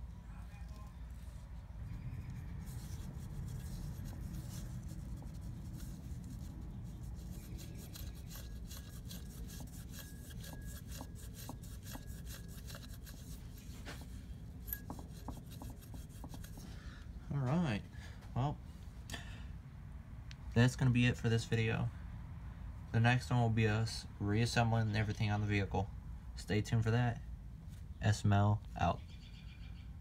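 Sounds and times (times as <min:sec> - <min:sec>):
steady low hum: 0:00.0 - 0:29.0
metal rubbing and scraping: 0:01.2 - 0:16.7.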